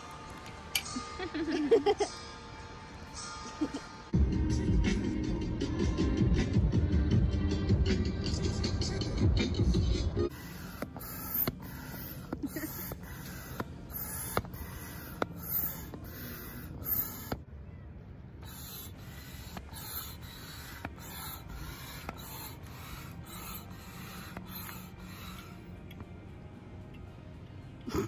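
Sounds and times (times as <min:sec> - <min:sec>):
hand air pump rasping: 0:10.3 - 0:17.4, 0:18.4 - 0:26.1.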